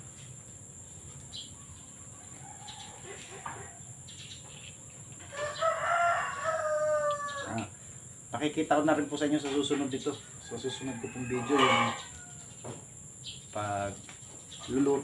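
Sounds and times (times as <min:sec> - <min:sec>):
rooster crowing: 0:02.0 - 0:04.0, 0:05.2 - 0:07.8, 0:10.1 - 0:12.7.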